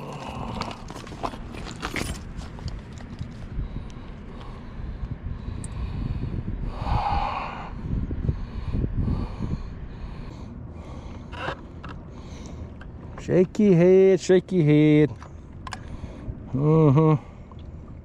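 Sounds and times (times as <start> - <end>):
wind rumbling on microphone: 0.0 - 13.7, 15.2 - 18.0
rush of air: 3.6 - 11.0.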